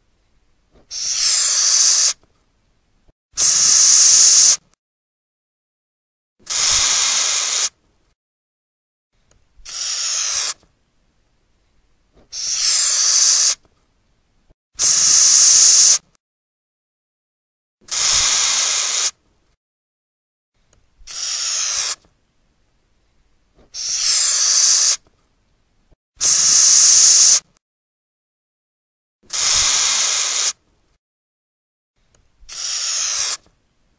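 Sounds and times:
cockroach hissing: 0.9s - 2.2s, 3.4s - 4.6s, 6.5s - 7.7s, 9.7s - 10.6s, 12.3s - 13.6s, 14.8s - 16.0s, 17.9s - 19.1s, 21.1s - 22.0s, 23.8s - 25.0s, 26.2s - 27.4s, 29.3s - 30.6s, 32.5s - 33.4s.

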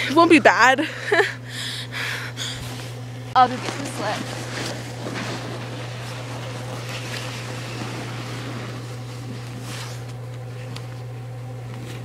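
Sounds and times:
steady low hum: 0.0s - 12.0s
faint scuffs and crunches: 2.6s - 11.0s.

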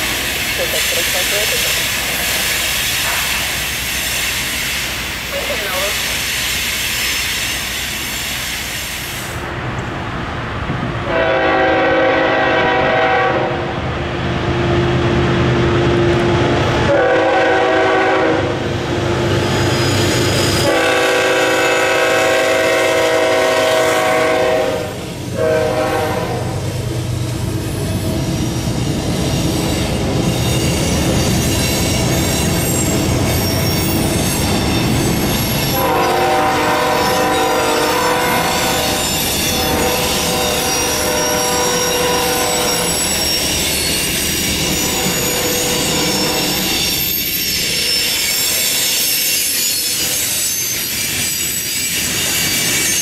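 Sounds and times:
train wheel squeal: 0.0s - 9.4s, 19.2s - 26.7s, 27.6s - 53.0s
train wheel clatter: 0.0s - 10.0s, 26.7s - 53.0s
passing train rumble: 0.0s - 53.0s
locomotive horn blasts: 11.1s - 13.7s, 16.9s - 18.6s, 20.6s - 26.6s, 35.7s - 43.1s, 44.8s - 46.7s.

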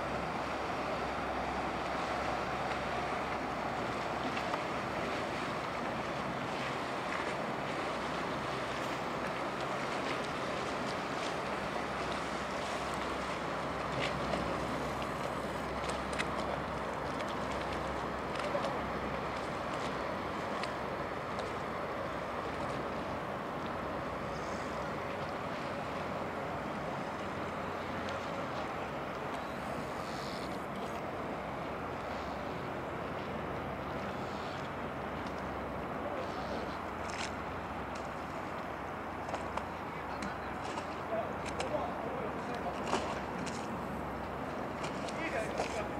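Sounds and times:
boat engine running: 0.0s - 45.9s
river water lapping: 0.0s - 45.9s.

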